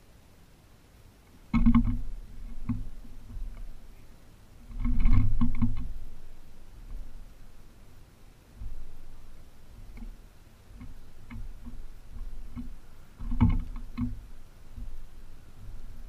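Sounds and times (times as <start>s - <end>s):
fish knocking against wooden post: 1.5s - 3.7s, 4.7s - 6.2s, 8.6s - 16.0s.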